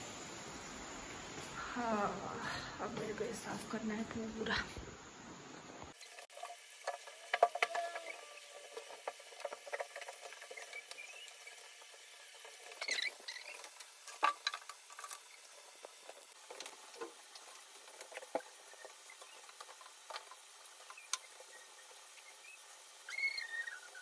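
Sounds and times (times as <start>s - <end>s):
short high squeaks: 7.6s - 8.6s, 12.7s - 13.8s, 22.4s - 24.0s.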